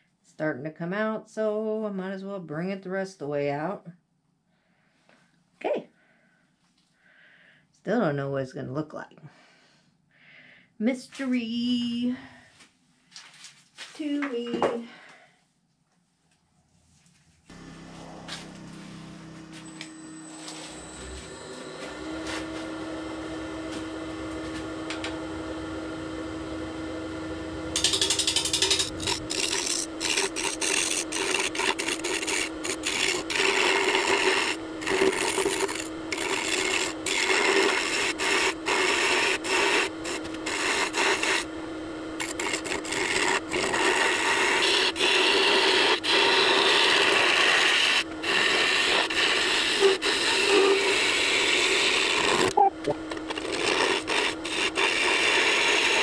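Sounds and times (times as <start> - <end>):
gouge scraping spinning wood: 17.5 - 56.0
wood lathe humming: 17.5 - 56.0.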